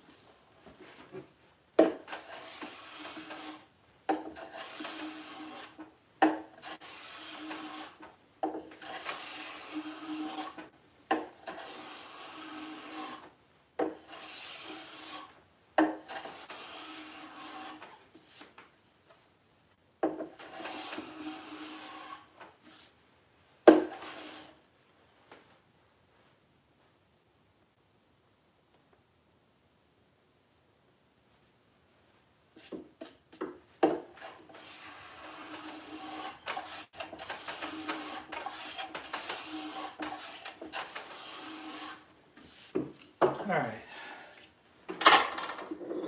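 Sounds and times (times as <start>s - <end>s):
hand plane shaving wood: 2.0s - 5.8s, 6.5s - 13.3s, 14.0s - 15.4s, 16.0s - 18.0s, 20.3s - 22.4s, 23.8s - 24.6s, 34.0s - 42.8s.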